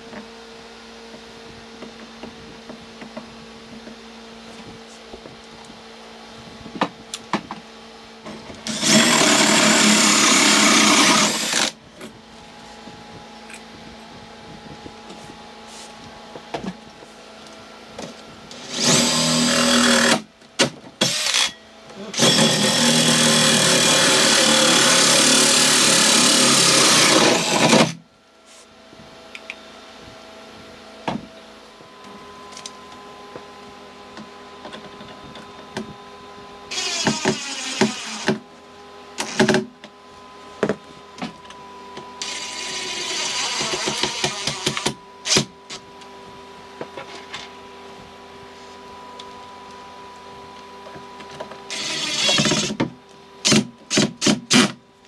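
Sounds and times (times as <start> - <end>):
drill boring through wood: 8.6 - 11.8, 18.5 - 20.2, 21.0 - 28.0, 36.7 - 38.4, 42.2 - 45.5, 51.7 - 52.8
drill driving screws: 8.6 - 11.8, 18.5 - 20.3, 21.0 - 21.6, 22.2 - 28.0, 36.7 - 38.4, 39.2 - 39.6, 42.2 - 45.5, 51.7 - 52.8, 53.4 - 54.8.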